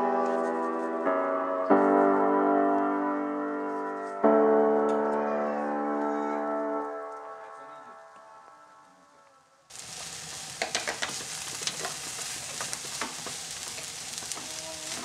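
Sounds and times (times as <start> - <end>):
fried rice sizzling in a pan: 9.7 - 15.0.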